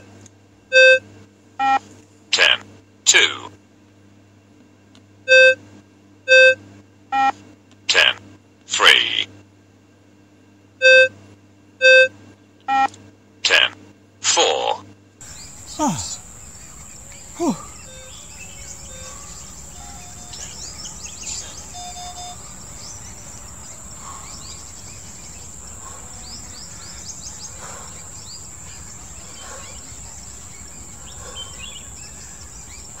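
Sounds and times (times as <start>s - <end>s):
birds chirping: 15.2s - 33.0s
high-pitched insect drone: 15.2s - 33.0s.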